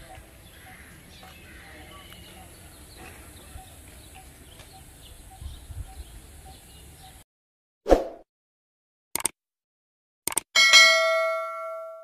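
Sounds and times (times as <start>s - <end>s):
bird chirping: 0.0s - 7.2s
double click: 10.3s - 10.5s.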